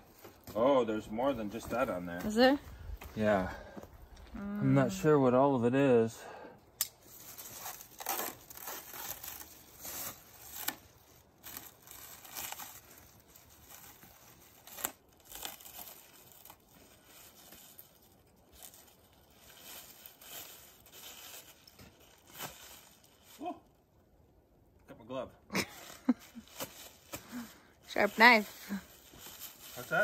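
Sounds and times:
plastic wrap tearing and crinkling: 0:07.0 - 0:23.5, 0:28.1 - 0:30.0.

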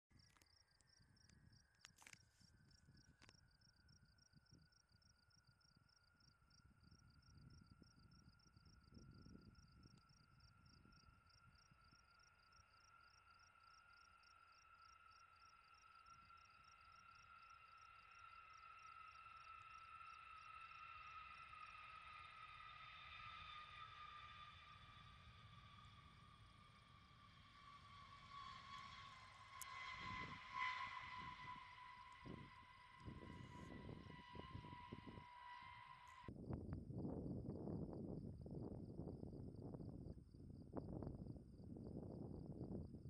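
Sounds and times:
insects chirping: 0:00.1 - 0:43.0
low wind rumble: 0:06.5 - 0:11.8, 0:25.3 - 0:43.0.

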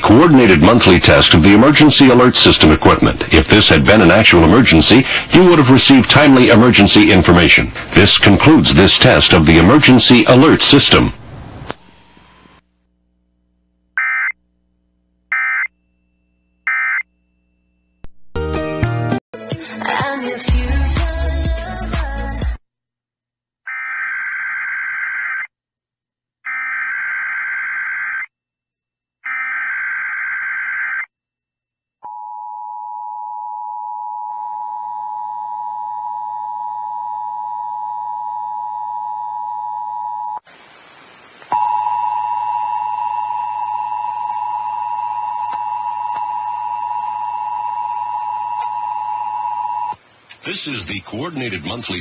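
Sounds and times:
radio hiss: 0:40.4 - 0:41.5.

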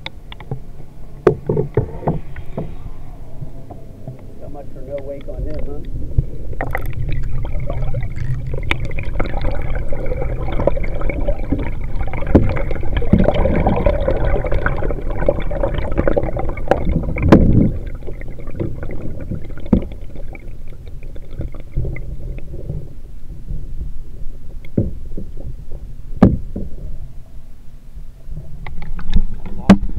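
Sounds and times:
muffled underwater water sloshing: 0:00.0 - 0:29.9
sharp knocks: 0:26.2 - 0:26.7.

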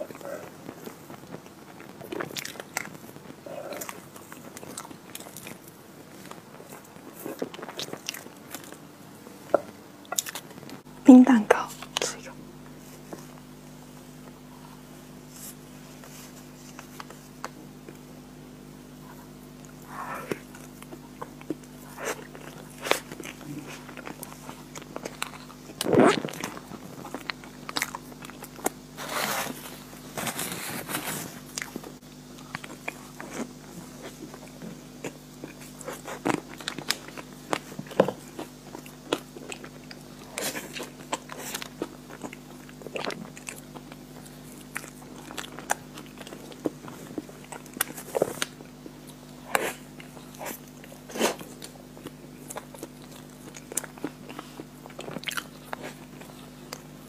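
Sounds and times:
person chewing cake: 0:00.0 - 0:10.9, 0:11.6 - 0:57.0
steady low hum: 0:00.0 - 0:57.0.

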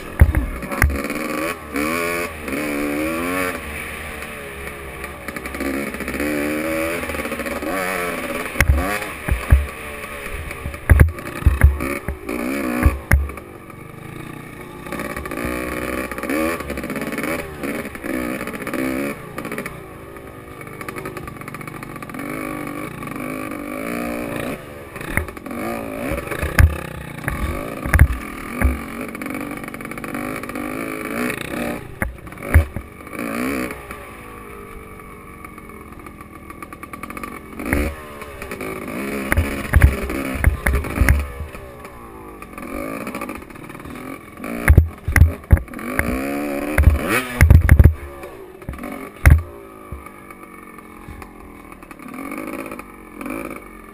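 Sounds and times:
low thumps of bike on bumps: 0:00.0 - 0:53.8
motorcycle engine revving: 0:00.0 - 0:53.9.

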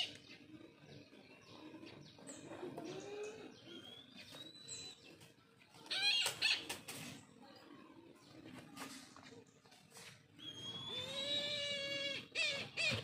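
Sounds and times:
small birds chirping: 0:00.0 - 0:13.0.

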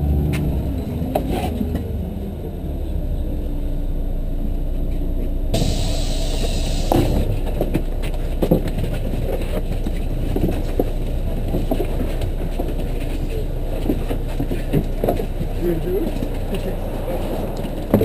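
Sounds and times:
bus engine idling: 0:00.0 - 0:18.0
short hiss: 0:05.6 - 0:07.4
passengers shuffling: 0:05.6 - 0:18.0
knocks and bumps: 0:06.7 - 0:16.6
murmured voices: 0:15.4 - 0:18.0.

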